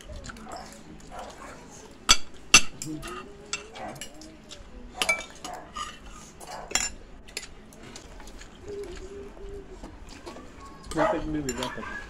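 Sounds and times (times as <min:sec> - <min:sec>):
spoons clinking on plates: 0:02.0 - 0:04.3, 0:05.0 - 0:07.6, 0:10.8 - 0:12.0.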